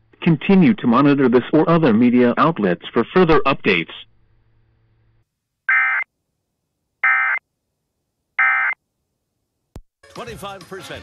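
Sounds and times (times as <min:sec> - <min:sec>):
digital data tone bursts: 0:07.0 - 0:07.4, 0:08.4 - 0:08.8.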